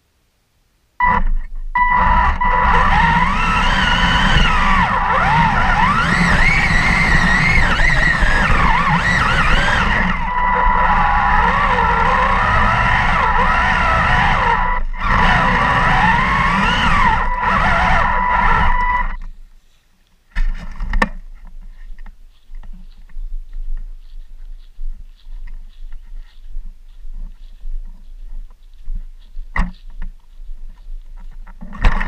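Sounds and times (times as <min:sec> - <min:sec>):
electric motors whining: 0:01.0 - 0:19.2
tank tracks rattling: 0:02.7 - 0:18.8.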